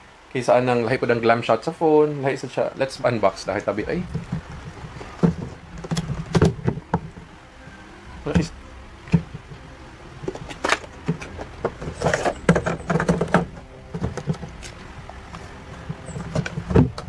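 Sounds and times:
cardboard and plastic rustling: 3.5 - 7.3, 10.2 - 17.0.

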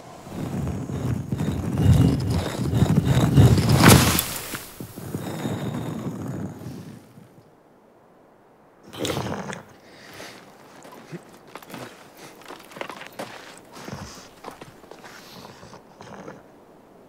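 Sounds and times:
stone grinding and rumbling: 0.0 - 7.0.

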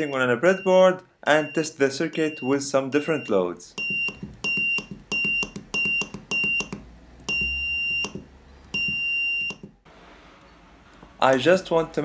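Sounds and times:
high-pitched buzzer beeping: 3.8 - 6.7, 7.3 - 9.7.

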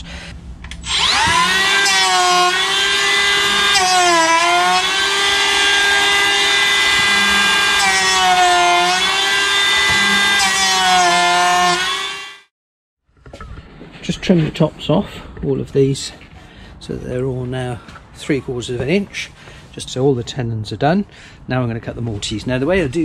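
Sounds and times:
electric planer whining: 0.8 - 12.5.

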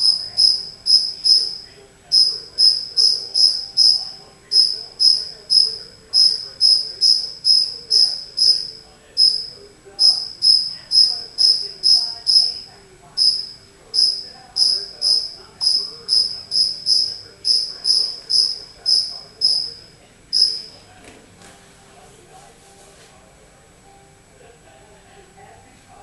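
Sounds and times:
cricket chirping: 0.0 - 20.8.

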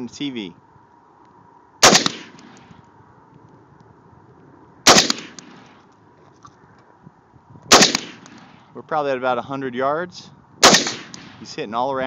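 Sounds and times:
rifle shots: 1.8 - 2.7, 4.8 - 5.8, 7.7 - 8.7, 10.6 - 11.5.

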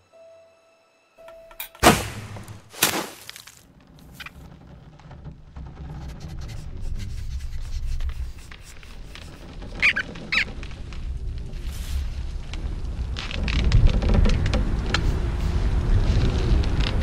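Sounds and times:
short high squeaks: 9.0 - 10.7.

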